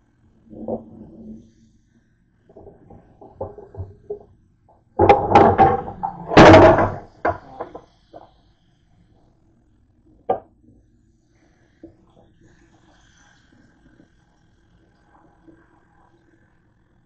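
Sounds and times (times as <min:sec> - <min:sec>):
clattering and knocking at sink: 0:02.6 - 0:04.2, 0:05.0 - 0:07.8.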